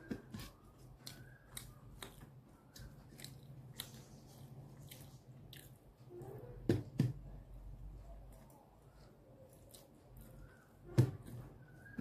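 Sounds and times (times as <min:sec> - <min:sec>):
chewing and mouth clicks: 0:01.0 - 0:06.0, 0:09.4 - 0:10.6.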